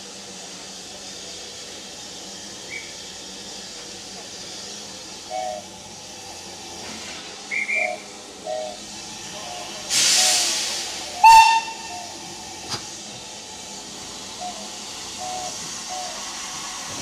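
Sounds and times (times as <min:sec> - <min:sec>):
locomotive steam hiss: 0:00.0 - 0:17.0
shrill steam whistle toot: 0:07.5 - 0:08.8, 0:09.9 - 0:12.2.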